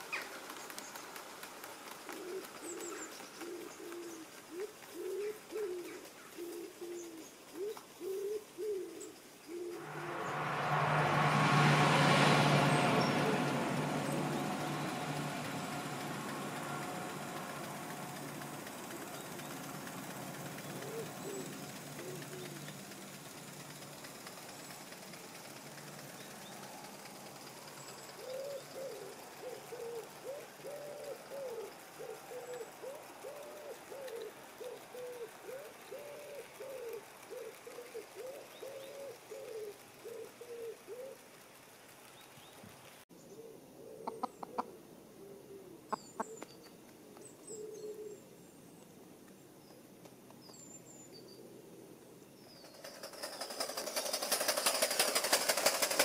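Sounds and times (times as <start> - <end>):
pigeon cooing: 2.1 - 9.8, 12.6 - 23.1, 28.2 - 41.2, 43.4 - 46.4
small bird chirping: 43.2 - 44.8, 45.9 - 48.3.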